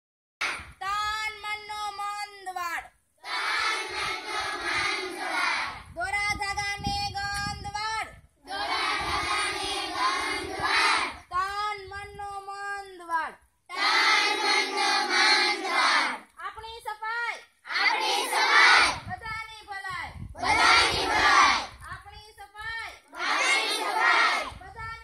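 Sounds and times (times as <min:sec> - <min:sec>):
girl calling out a chant: 0:00.8 - 0:02.8, 0:24.5 - 0:25.0.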